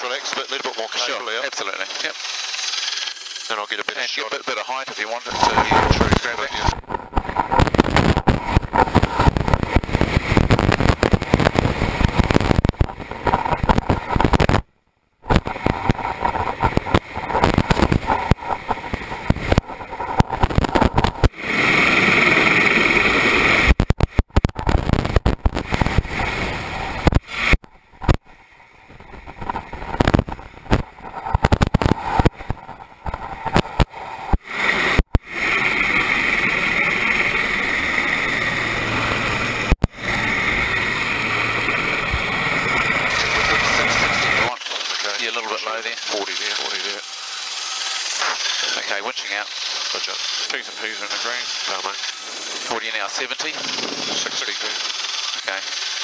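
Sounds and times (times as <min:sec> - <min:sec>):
helicopter rotor and engine: 0:00.0 - 0:14.6, 0:15.2 - 0:23.8, 0:25.4 - 0:56.0
wind buffeting microphone: 0:05.3 - 0:14.6, 0:15.2 - 0:28.2.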